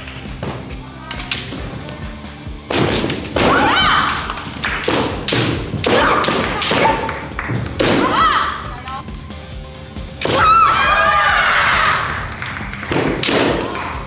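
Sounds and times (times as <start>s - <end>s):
bamboo swords striking: 2.7s - 7.1s, 7.8s - 8.2s, 10.2s - 10.6s, 12.9s - 13.8s.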